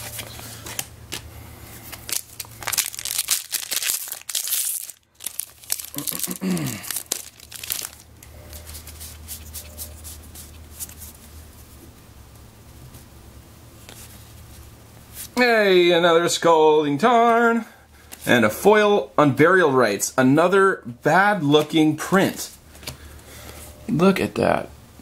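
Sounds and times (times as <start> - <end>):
cards rustling: 0.0 - 11.3
foil wrapper tearing and crinkling: 1.8 - 8.1.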